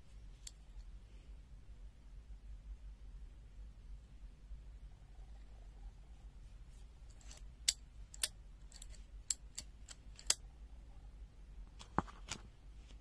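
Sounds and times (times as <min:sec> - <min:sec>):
pliers clicking: 0:07.2 - 0:10.4.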